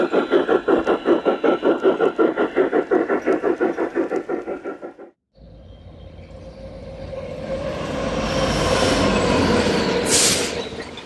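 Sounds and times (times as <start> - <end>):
model train rumbling on track: 0.0 - 5.2.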